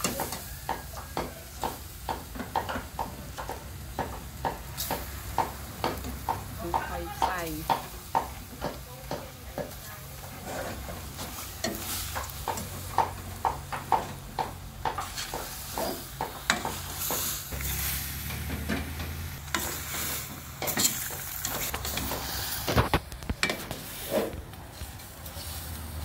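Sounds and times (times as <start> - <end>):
meat sizzling: 0.0 - 26.0
metal ladle scraping a pot: 10.1 - 12.3, 15.0 - 24.4.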